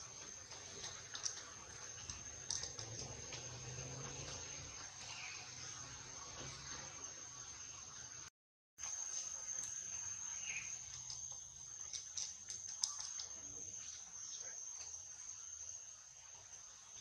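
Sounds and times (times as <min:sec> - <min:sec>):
high-pitched insect drone: 0:08.8 - 0:17.0.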